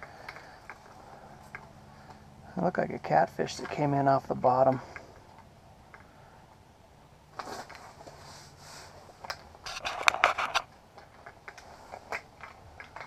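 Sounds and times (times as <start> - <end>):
soft rustle: 7.3 - 13.0
sharp clicks and knocks: 9.2 - 13.0.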